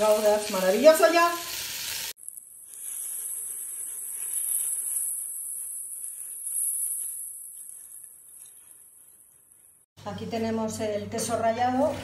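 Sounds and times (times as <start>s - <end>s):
stock pouring into pot: 2.1s - 8.8s.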